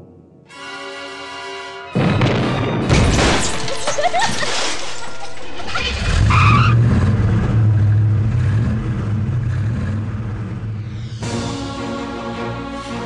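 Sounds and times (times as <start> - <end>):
music: 0.0 - 6.1, 10.8 - 13.0
tyre screech: 5.6 - 6.8
car engine droning: 5.7 - 11.5.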